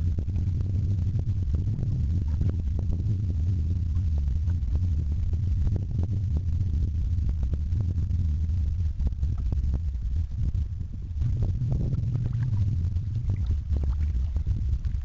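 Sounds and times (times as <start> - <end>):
wind on microphone: 0.0 - 15.0
water against kayak hull: 11.6 - 15.0.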